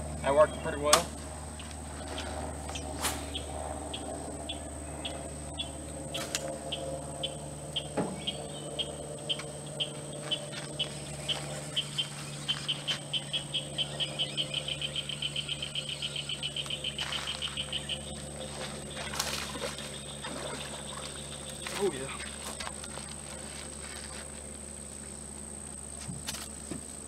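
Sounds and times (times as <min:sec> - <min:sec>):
frog calling clicks: 0:07.2 - 0:18.2.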